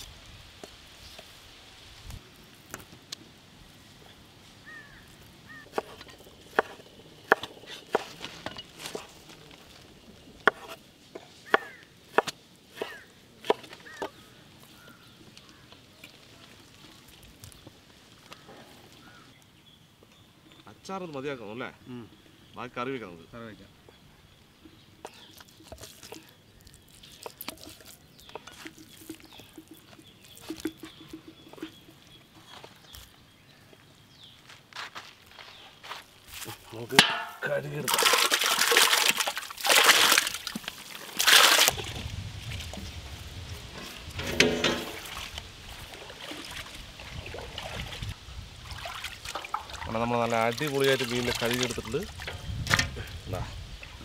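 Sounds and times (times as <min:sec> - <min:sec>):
water sloshing and trickling: 0:14.6 - 0:19.3, 0:24.3 - 0:32.9, 0:36.8 - 0:54.0.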